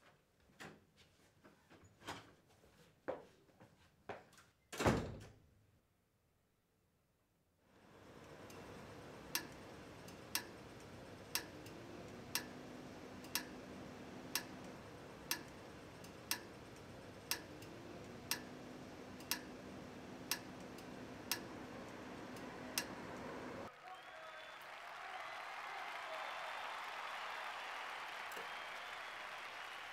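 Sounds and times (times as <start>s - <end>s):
room tone hiss: 7.7s - 29.9s
clock ticking: 9.3s - 12.6s, 13.2s - 13.6s, 14.3s - 17.7s, 18.3s - 18.5s, 19.2s - 19.6s, 20.3s - 21.5s.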